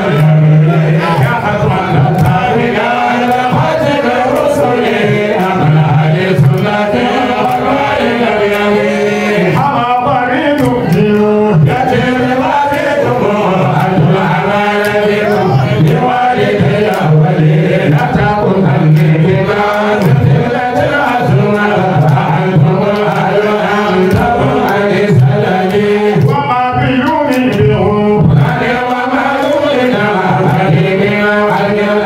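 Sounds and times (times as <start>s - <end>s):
man chanting into microphone: 0.0s - 32.0s.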